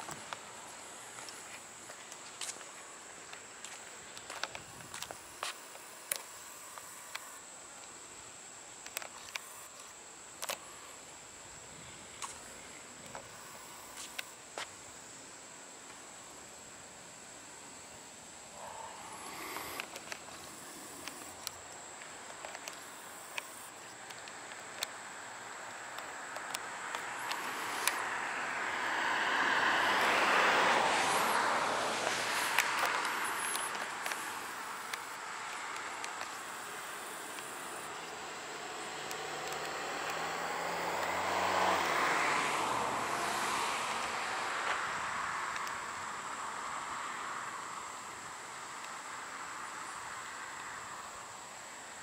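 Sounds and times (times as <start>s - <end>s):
street ambience: 0.0s - 52.0s
footsteps clicking: 1.2s - 6.3s
car passing: 18.5s - 21.4s, 25.1s - 48.3s.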